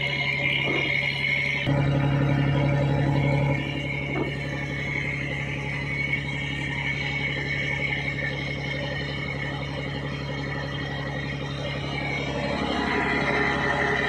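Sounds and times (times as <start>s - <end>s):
boat diesel engine running: 0.0s - 14.0s.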